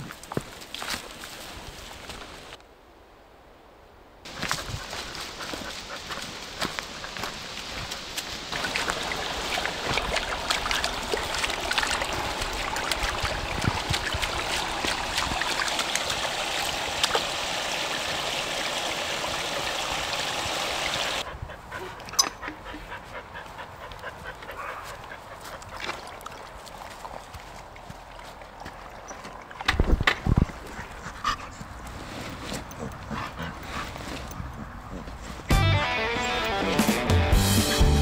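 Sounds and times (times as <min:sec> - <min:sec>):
footsteps: 0:04.3 - 0:17.7
stream splashing over rocks: 0:05.2 - 0:21.3, 0:25.7 - 0:30.4
rustling: 0:29.8 - 0:35.5.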